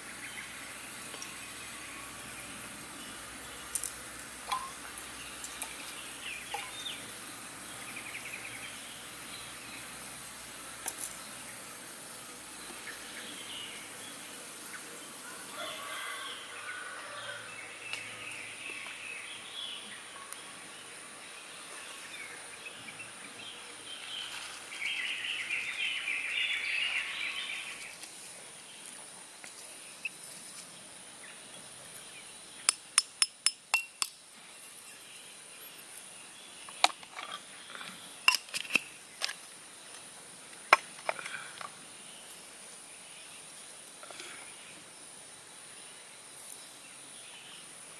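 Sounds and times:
birds: 0.0s - 33.0s, 34.4s - 47.9s
insects: 0.0s - 47.9s
clinks: 4.5s - 4.8s
ground coffee pouring rustle: 24.0s - 25.0s.

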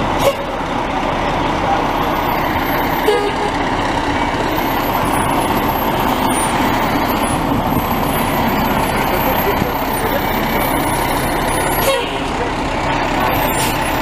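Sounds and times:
fire truck diesel engine passing: 0.0s - 14.0s
street traffic: 0.0s - 14.0s.

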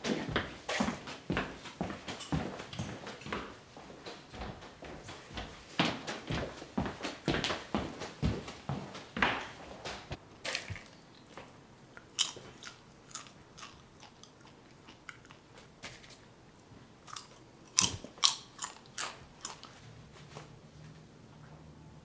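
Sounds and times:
person chewing crunchy food: 12.0s - 16.0s, 17.0s - 19.8s.

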